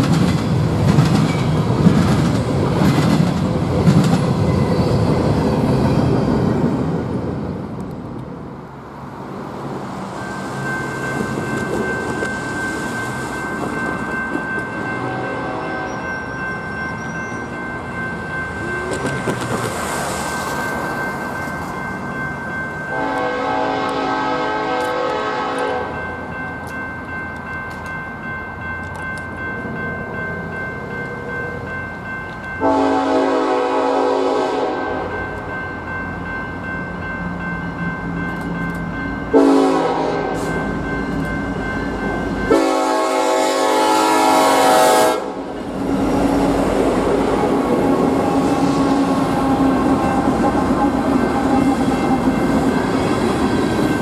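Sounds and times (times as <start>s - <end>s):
crossing warning bell ringing: 0.0s - 2.7s, 4.2s - 7.0s, 9.6s - 54.0s
train wheels clacking on rails: 0.0s - 6.6s, 10.0s - 15.2s, 15.8s - 24.1s
locomotive horn: 14.9s - 16.0s, 22.9s - 26.0s, 32.6s - 35.2s, 39.3s - 40.6s, 42.5s - 45.5s, 48.2s - 52.2s.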